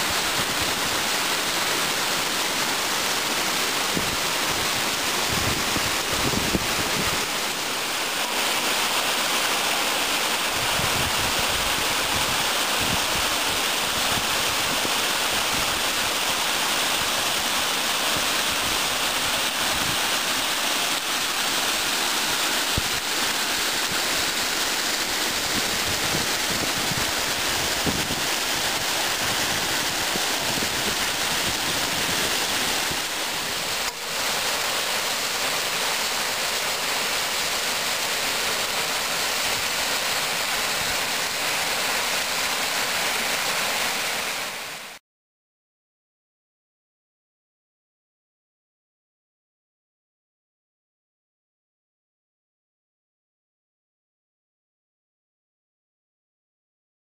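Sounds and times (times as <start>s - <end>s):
water rushing over rocks: 0.0s - 45.0s.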